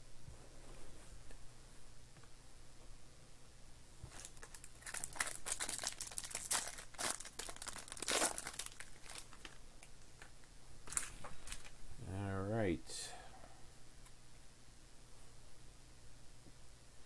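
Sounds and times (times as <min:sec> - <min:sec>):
foil wrapper tearing and crinkling: 0:04.1 - 0:11.7.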